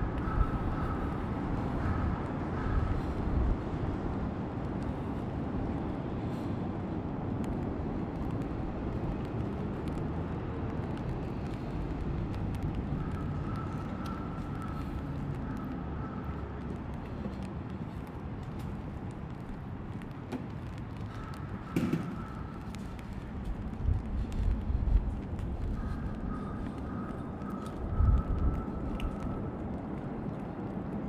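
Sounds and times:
heavy rain on street: 0:00.0 - 0:31.0
rain pattering on plastic umbrella: 0:07.3 - 0:31.0.

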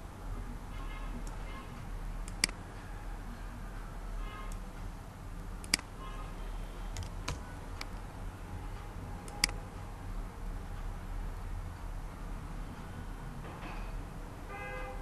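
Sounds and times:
steady low hum: 0:00.0 - 0:15.0
computer mouse clicking: 0:02.2 - 0:02.6, 0:05.6 - 0:05.9, 0:06.9 - 0:08.0.

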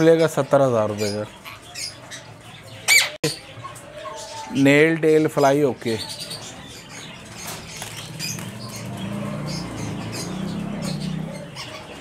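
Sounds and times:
birds chirping: 0:00.0 - 0:12.0
pigeon cooing: 0:07.4 - 0:12.0.

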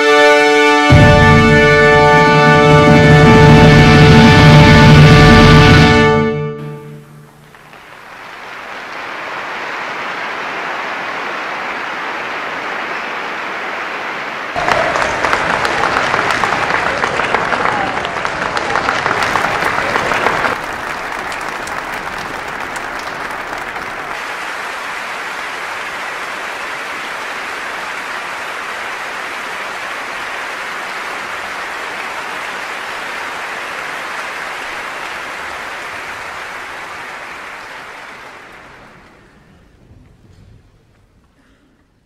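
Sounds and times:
large audience applauding: 0:07.2 - 0:39.7.

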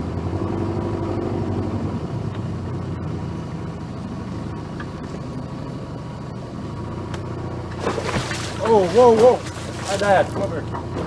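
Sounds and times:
engine idling: 0:02.4 - 0:11.0.

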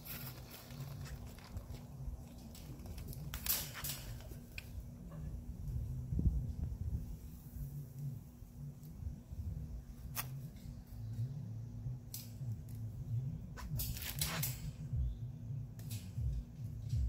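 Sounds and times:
low steady hum: 0:00.0 - 0:17.0
sharp clicks and snips: 0:12.1 - 0:12.8.

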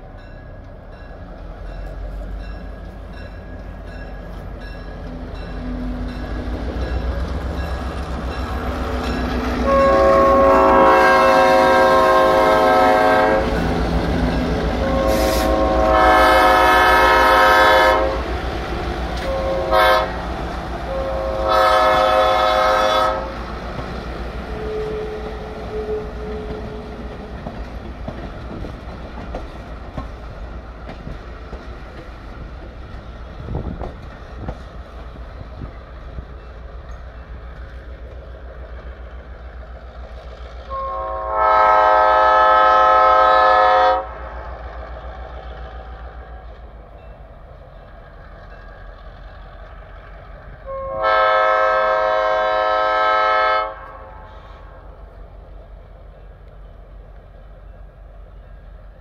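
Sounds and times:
train coaches rumbling on rails: 0:00.0 - 0:59.0
train wheel clacks: 0:00.4 - 0:40.8
train horn blasts: 0:09.2 - 0:18.4, 0:19.2 - 0:23.5, 0:24.5 - 0:27.1, 0:40.7 - 0:44.6, 0:50.6 - 0:54.9.

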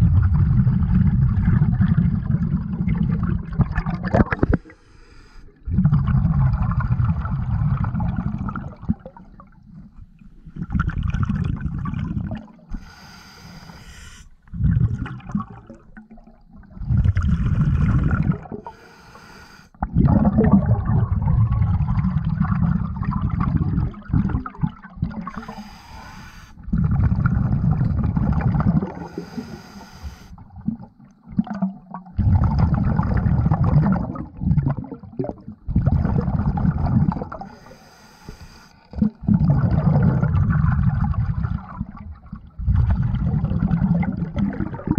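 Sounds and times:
exhaled bubbles rushing: 0:00.0 - 0:04.8, 0:05.6 - 0:12.9, 0:13.9 - 0:18.7, 0:19.8 - 0:25.7, 0:26.6 - 0:29.5, 0:30.4 - 0:37.6, 0:38.9 - 0:44.9
regulator hissing inhalations: 0:12.7 - 0:14.4, 0:18.7 - 0:19.7, 0:25.3 - 0:26.6, 0:29.0 - 0:30.4, 0:37.5 - 0:38.8.

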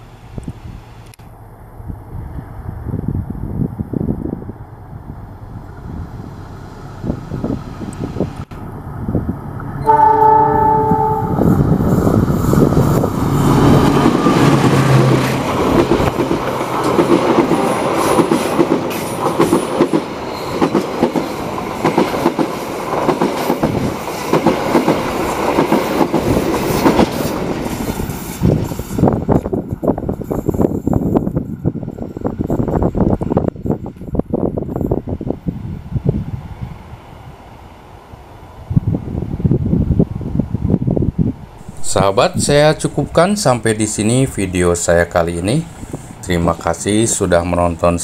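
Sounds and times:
train rumbling: 0:00.0 - 0:48.0
wind buffeting microphone: 0:01.6 - 0:09.7, 0:11.3 - 0:20.1, 0:21.0 - 0:44.5
train horn blast: 0:09.8 - 0:12.0.

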